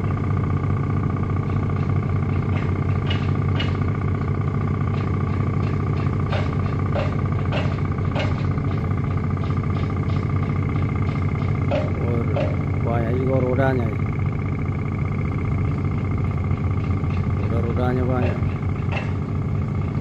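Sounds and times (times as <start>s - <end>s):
boat engine running: 0.0s - 20.0s
sharp knocks: 5.0s - 12.6s.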